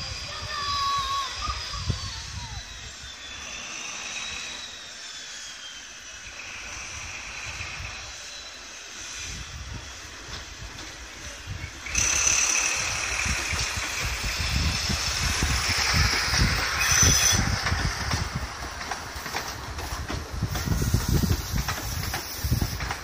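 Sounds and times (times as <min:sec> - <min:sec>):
diesel train engine whine: 0:00.0 - 0:23.0
coach wheels thumping over rail joints: 0:13.1 - 0:23.0.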